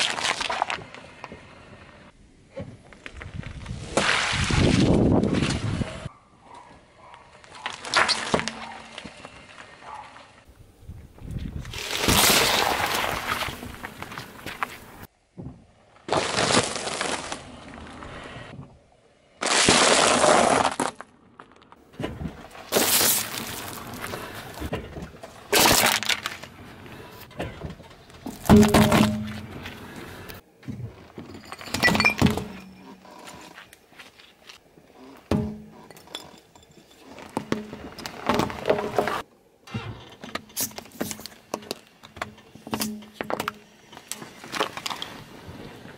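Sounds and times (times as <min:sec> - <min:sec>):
plastic tubs cracking under tyre: 0:19.4 - 0:26.6, 0:27.4 - 0:29.8
tyre crunching sticks: 0:19.4 - 0:27.5.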